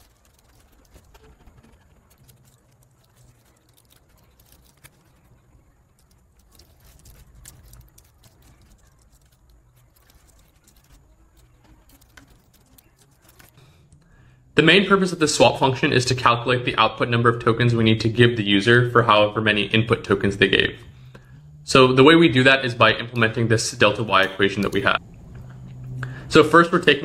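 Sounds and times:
keyboard typing: 0.0 - 14.0, 23.0 - 25.0
low hum: 0.0 - 27.0.

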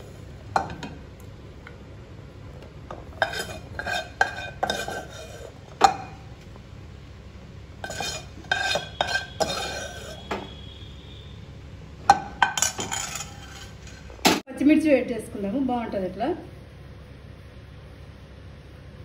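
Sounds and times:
metal spoon clinking cookware: 7.8 - 10.2, 12.1 - 14.1.

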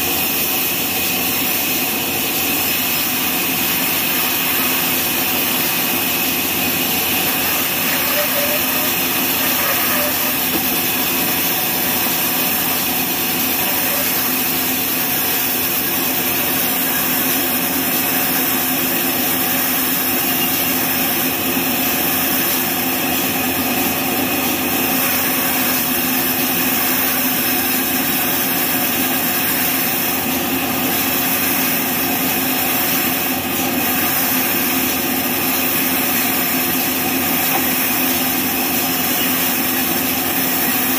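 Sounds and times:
band saw cutting through log: 0.0 - 40.9.

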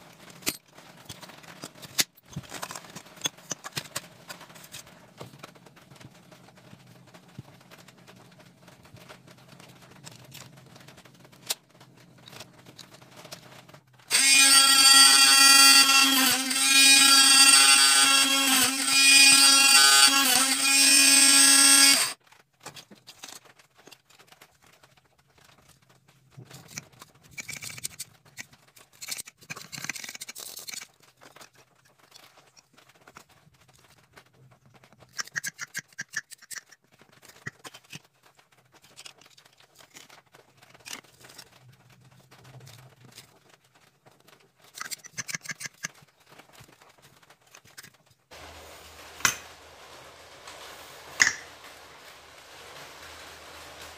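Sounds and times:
bench drill motor whine: 14.1 - 22.2.

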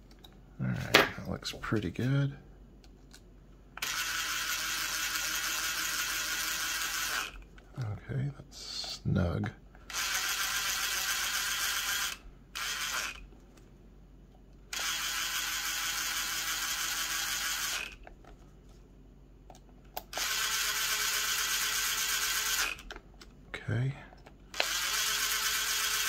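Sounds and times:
cordless driver running: 3.8 - 7.4, 9.9 - 13.2, 14.7 - 18.0, 20.1 - 22.9, 24.5 - 26.0.

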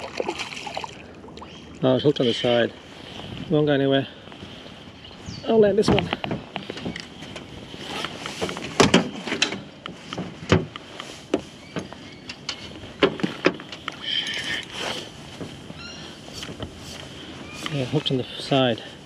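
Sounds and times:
water splashes: 0.0 - 2.4.

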